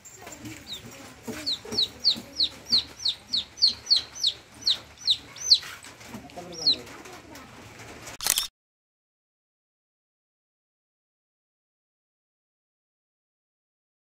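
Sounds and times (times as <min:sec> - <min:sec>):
chick peeping: 0:00.3 - 0:07.1.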